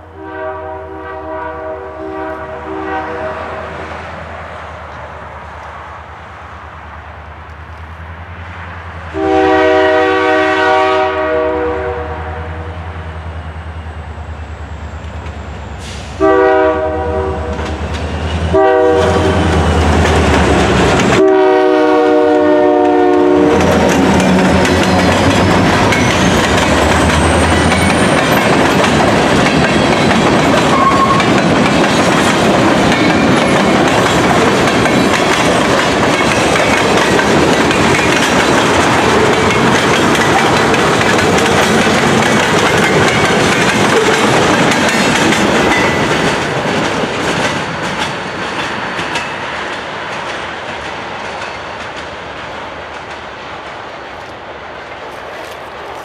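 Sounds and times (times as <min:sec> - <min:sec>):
train air horn: 0:00.0 - 0:03.9, 0:09.1 - 0:13.0, 0:15.8 - 0:17.8, 0:18.5 - 0:19.6, 0:21.1 - 0:28.2, 0:30.7 - 0:31.4
diesel locomotive engines: 0:00.0 - 0:56.0
train wheels clacking on rails: 0:13.4 - 0:21.5, 0:22.1 - 0:56.0.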